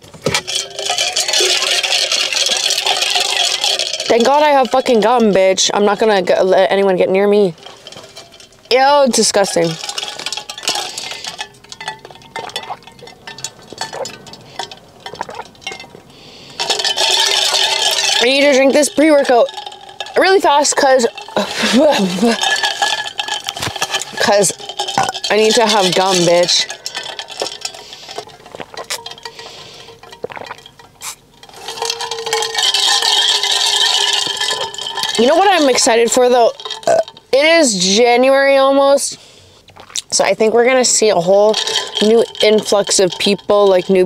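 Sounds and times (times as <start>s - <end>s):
liquid slurping: 0.4s - 6.2s, 7.6s - 15.8s, 16.5s - 37.4s, 41.4s - 44.0s
sipping through a straw: 27.6s - 31.9s.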